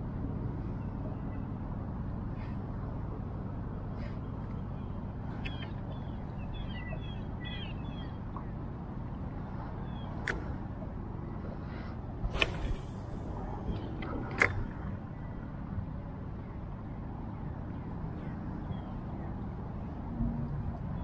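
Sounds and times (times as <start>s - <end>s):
wind rumble on microphone: 0.0s - 21.0s
small birds chirping: 3.8s - 8.7s, 9.6s - 10.6s.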